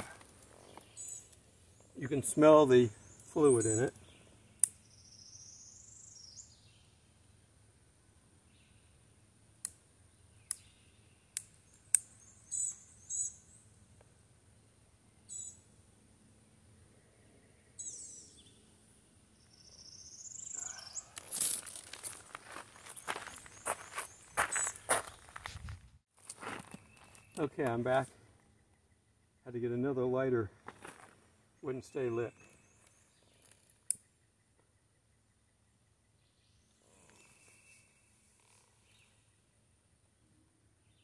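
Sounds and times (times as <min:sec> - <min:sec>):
birds chirping: 0:00.0 - 0:07.4, 0:09.9 - 0:13.8, 0:14.5 - 0:15.8, 0:16.7 - 0:25.5, 0:26.4 - 0:40.0
rustling and shuffling: 0:21.2 - 0:27.3.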